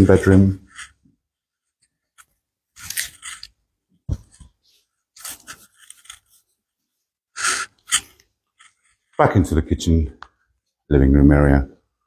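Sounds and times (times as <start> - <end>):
footsteps: 4.1 - 4.6.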